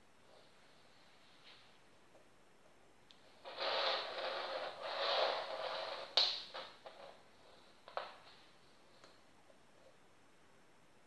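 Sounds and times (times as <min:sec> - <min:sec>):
plastic rustling scrape: 0:03.4 - 0:08.2.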